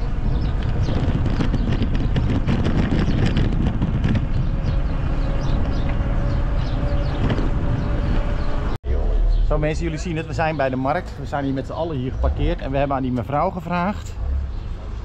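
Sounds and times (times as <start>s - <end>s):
wind rushing over microphone: 0.0s - 9.4s
road rumble: 0.0s - 15.0s.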